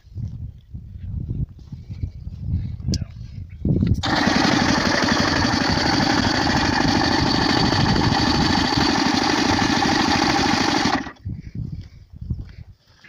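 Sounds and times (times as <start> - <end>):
tractor engine running: 3.9 - 11.2.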